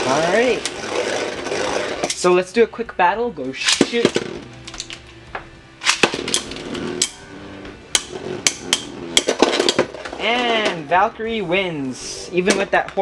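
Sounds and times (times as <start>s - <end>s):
spinning tops whirring: 0.0s - 2.4s, 5.8s - 11.0s
spinning tops clacking: 5.8s - 7.2s, 7.9s - 10.8s.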